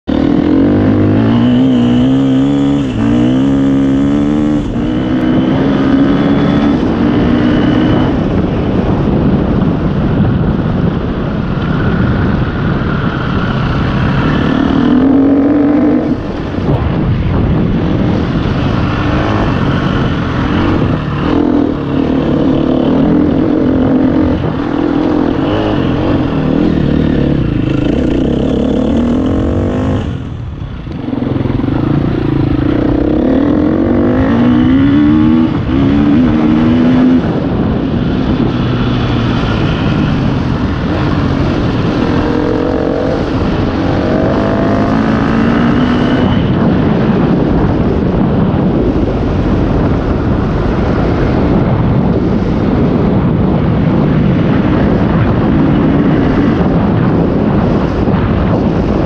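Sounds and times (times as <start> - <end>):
dirt bike engine revving: 0.0 - 8.6, 11.7 - 47.8.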